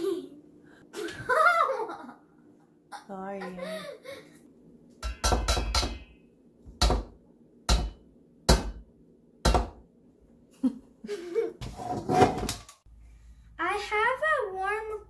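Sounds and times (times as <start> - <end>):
egg knocking on metal bowl: 5.0 - 9.8.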